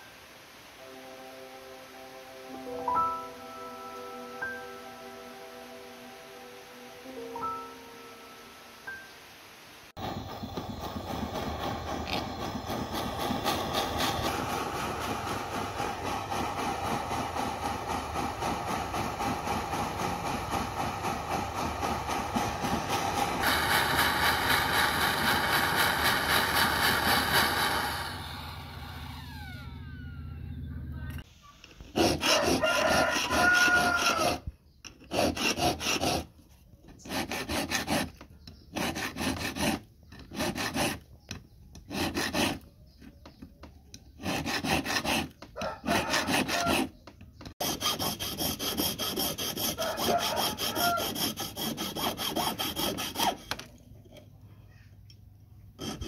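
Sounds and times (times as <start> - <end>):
hand file rasping on metal: 10.0 - 28.1, 31.9 - 36.3, 36.9 - 41.1, 41.7 - 42.7, 44.0 - 53.7, 55.8 - 56.0
torch flame hissing: 10.0 - 28.6.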